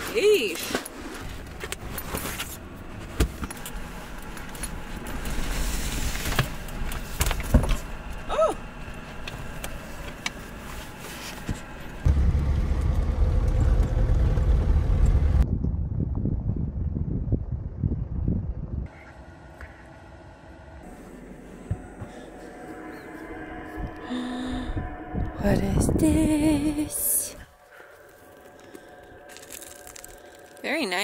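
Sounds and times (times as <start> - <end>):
loud low rumble: 12.0 - 30.6.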